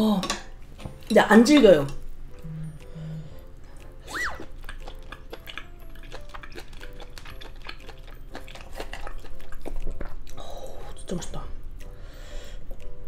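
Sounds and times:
faint background music: 0:00.0 - 0:13.0
wet chewing mouth clicks: 0:02.3 - 0:11.1.

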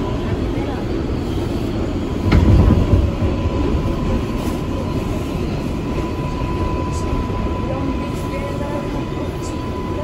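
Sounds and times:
subway car equipment hum: 0:00.0 - 0:10.0
low rumble: 0:01.8 - 0:07.6.

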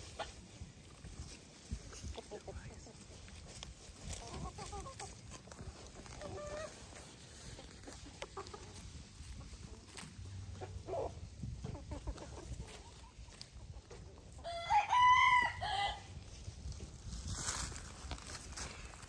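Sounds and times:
chickens clucking: 0:00.0 - 0:14.5.

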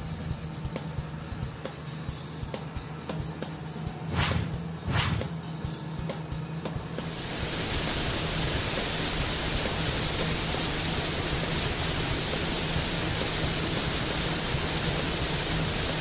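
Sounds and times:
liquid spraying hiss: 0:07.0 - 0:16.0.

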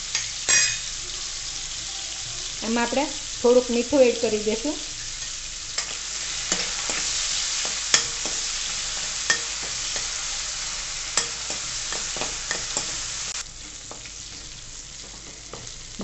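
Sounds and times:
vegetables sizzling in hot oil: 0:00.0 - 0:16.0
spoon clinking and scraping pan: 0:00.1 - 0:00.9, 0:05.0 - 0:14.4.

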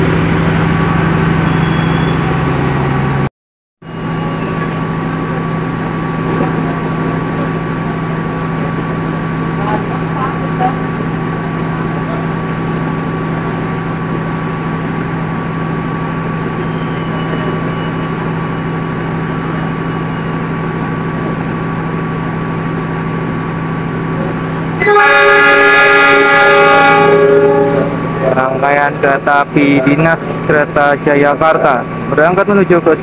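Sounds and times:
diesel train idling: 0:00.0 - 0:33.0
train horn blast: 0:24.8 - 0:28.0.

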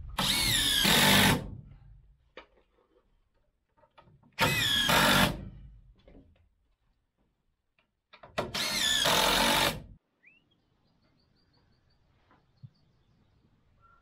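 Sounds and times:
cordless drill driving screws: 0:00.2 - 0:01.5, 0:04.4 - 0:05.5, 0:08.4 - 0:09.9.

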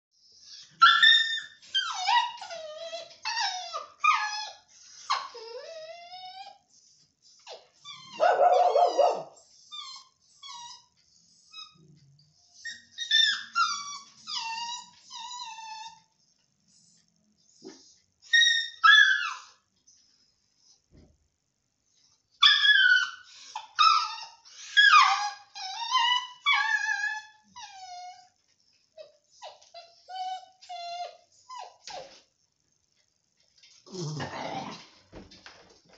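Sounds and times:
puppy crying and whining: 0:00.4 - 0:06.7, 0:07.3 - 0:11.8, 0:12.5 - 0:16.2, 0:17.6 - 0:19.6, 0:22.4 - 0:32.2, 0:33.9 - 0:35.0.

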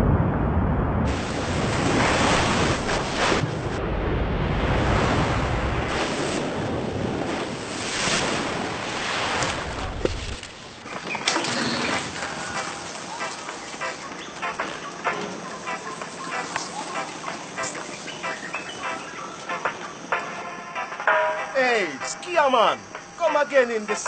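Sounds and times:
wave breaking: 0:00.0 - 0:14.0.

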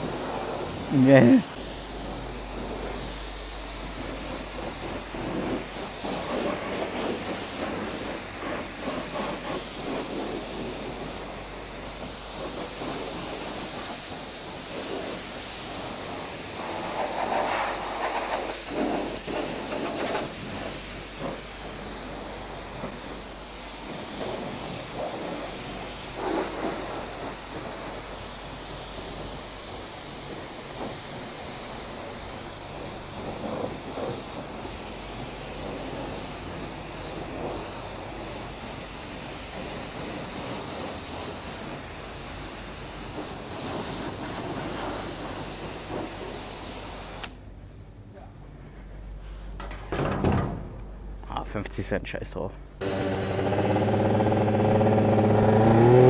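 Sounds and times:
pressure washer spraying water: 0:00.0 - 0:47.5, 0:52.8 - 0:56.0
low steady hum: 0:00.8 - 0:07.9.

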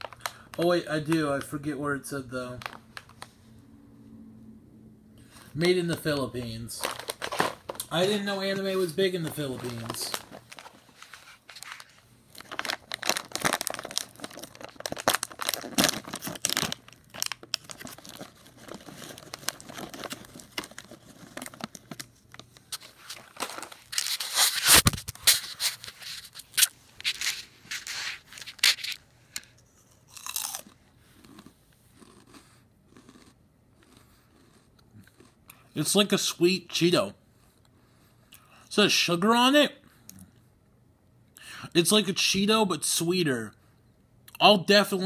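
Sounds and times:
person crunching snacks: 0:06.8 - 0:08.2, 0:09.2 - 0:35.7.

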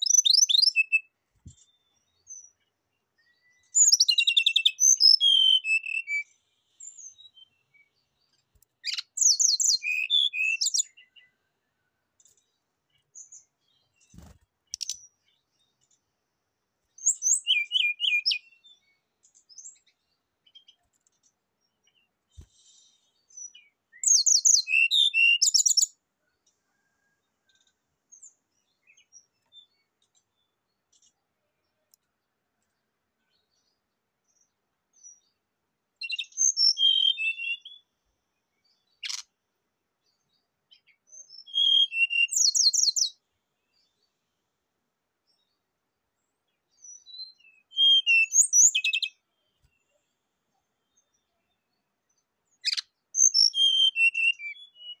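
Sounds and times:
bird singing trills and whistles: 0:00.0 - 0:02.6, 0:03.2 - 0:08.0, 0:08.8 - 0:11.4, 0:13.2 - 0:15.4, 0:17.0 - 0:20.9, 0:22.4 - 0:26.0, 0:36.0 - 0:37.9, 0:38.6 - 0:39.3, 0:40.7 - 0:43.2, 0:46.8 - 0:49.2, 0:52.5 - 0:55.0.

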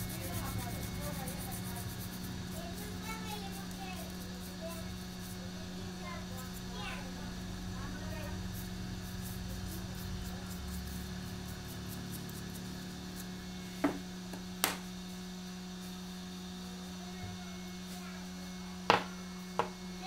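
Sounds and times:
low electrical hum: 0:00.0 - 0:20.0.

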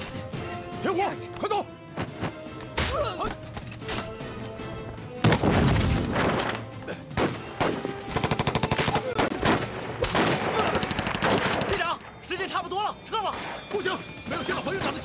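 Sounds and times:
dramatic background music: 0:00.0 - 0:15.0
single gunshots: 0:08.8 - 0:11.8.

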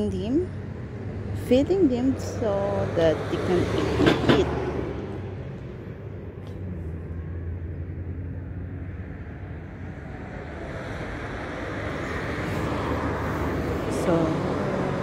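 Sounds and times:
low rumble of passing vehicles: 0:00.0 - 0:15.0.

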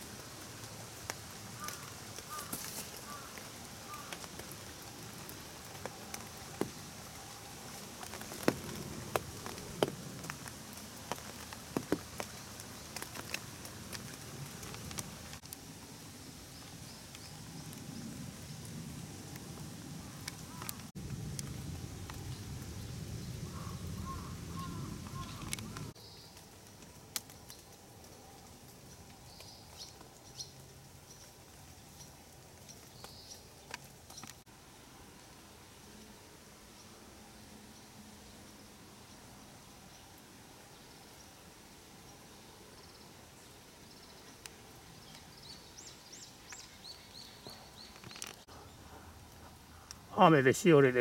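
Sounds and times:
raindrops tapping on umbrella: 0:00.0 - 0:15.7
rainfall hiss: 0:00.0 - 0:51.0.

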